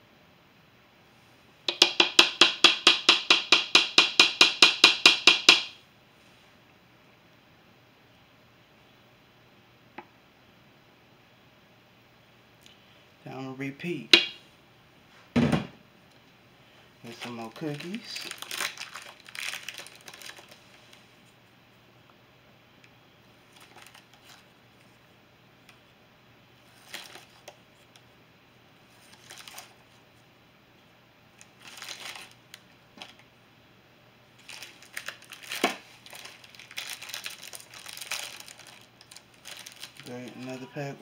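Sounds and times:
foil wrapper tearing and crinkling: 17.1 - 20.7, 23.5 - 24.4, 26.8 - 27.5, 29.0 - 29.8, 31.5 - 32.4, 34.4 - 40.6.

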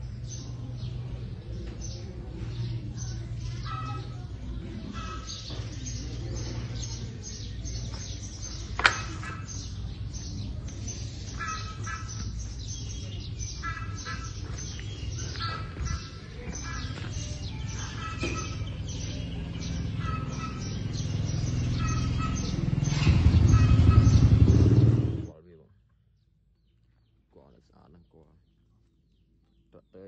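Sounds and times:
birds chirping: 0.0 - 30.0.

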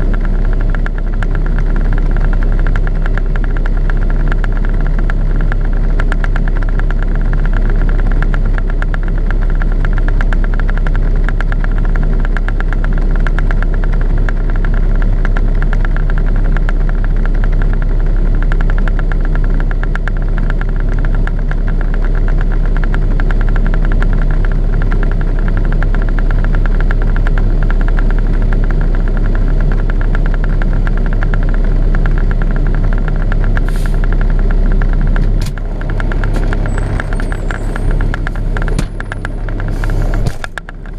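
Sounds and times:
diesel truck engine idling: 0.0 - 40.9.

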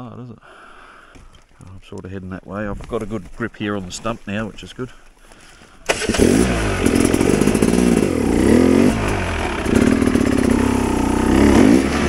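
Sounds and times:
dirt bike engine revving: 5.9 - 12.0.

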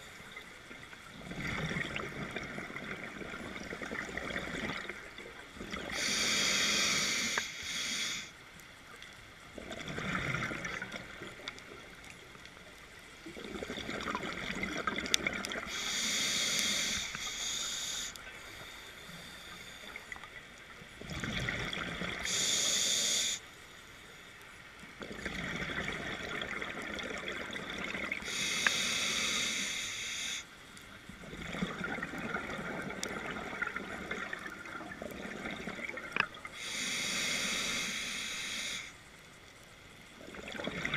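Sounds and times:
exhaust bubbles burbling: 1.2 - 6.0, 13.3 - 15.7, 25.0 - 28.2, 31.2 - 36.4
scuba regulator hissing inhale: 5.8 - 8.4, 15.6 - 20.2, 22.2 - 23.5, 28.2 - 30.6, 36.5 - 39.0.

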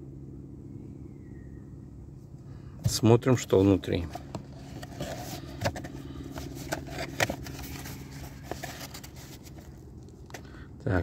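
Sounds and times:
low hum: 0.0 - 10.8
cardboard flaps scraping and clicking: 4.0 - 9.8.

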